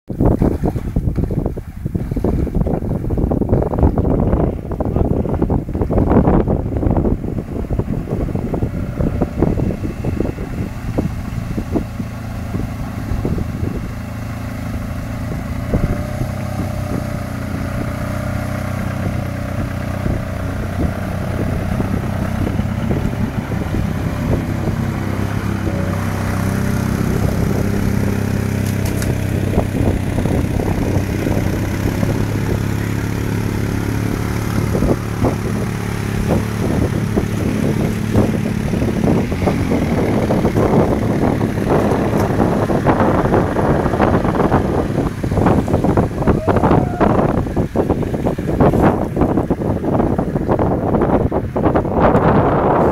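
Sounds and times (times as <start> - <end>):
water splashing and sloshing: 0.1 - 3.9
vehicle engine under load: 0.1 - 52.9.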